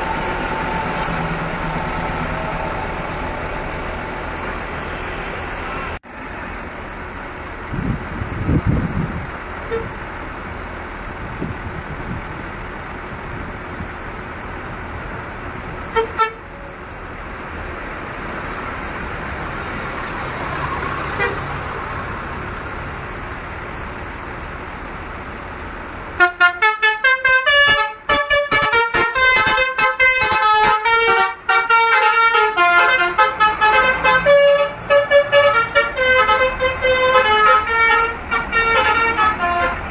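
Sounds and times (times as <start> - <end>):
diesel bus engine running: 0.0 - 39.9
multi-tone bus horn tune: 9.6 - 10.0, 15.9 - 16.6, 21.1 - 21.6, 26.1 - 39.9.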